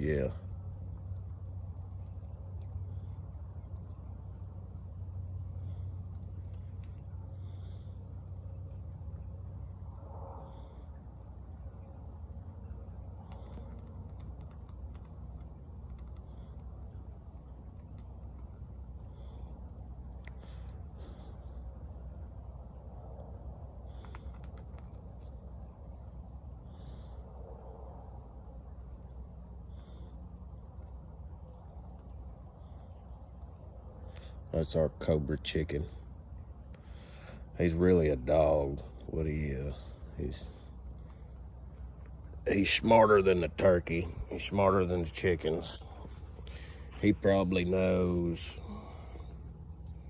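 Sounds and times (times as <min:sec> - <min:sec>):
crickets droning: 0:00.0 - 0:50.0
steady low rumble: 0:00.0 - 0:50.0
faint clicks: 0:01.9 - 0:04.0, 0:05.6 - 0:07.1, 0:13.0 - 0:18.6, 0:23.9 - 0:25.4.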